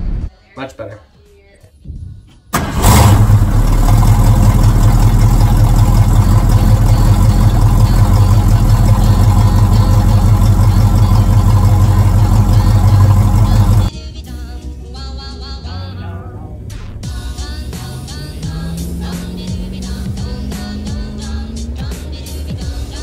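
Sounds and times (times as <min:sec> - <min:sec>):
car engine exhaust idling: 0:02.8 - 0:13.9.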